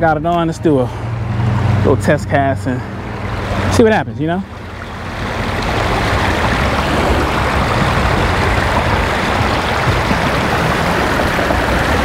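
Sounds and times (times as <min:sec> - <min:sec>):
creek water over rocks: 0:00.0 - 0:12.0.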